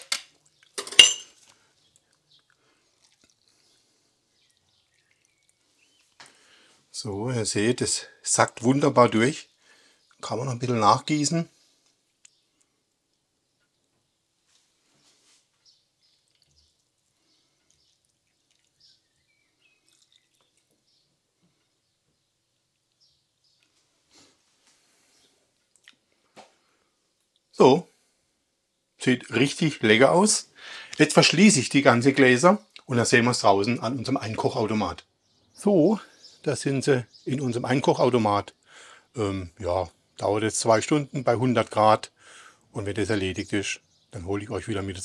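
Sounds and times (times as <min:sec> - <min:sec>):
glass jar clink: 0:00.8 - 0:01.4
liquid trickling and dripping: 0:01.4 - 0:06.4, 0:16.0 - 0:21.6.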